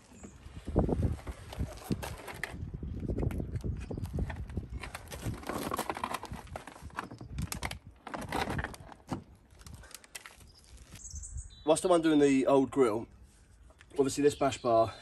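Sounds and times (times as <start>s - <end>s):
plastic knocks and clatter: 4.2s - 9.3s.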